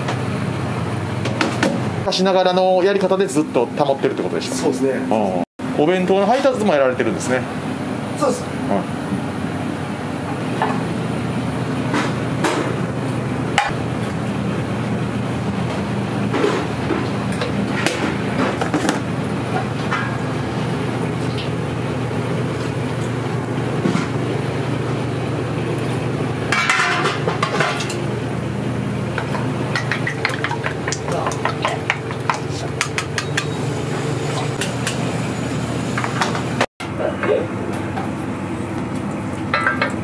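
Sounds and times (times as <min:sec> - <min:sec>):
kitchen hum: 0:00.0 - 0:40.0
utensils clinking on metal cookware: 0:26.5 - 0:28.0, 0:29.2 - 0:33.7, 0:39.5 - 0:40.0.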